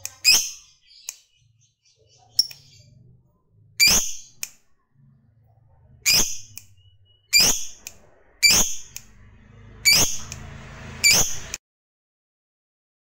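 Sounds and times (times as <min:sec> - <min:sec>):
lovebird shrill calls: 0:03.8 - 0:04.4, 0:06.0 - 0:09.0, 0:09.8 - 0:10.4, 0:11.0 - 0:11.6.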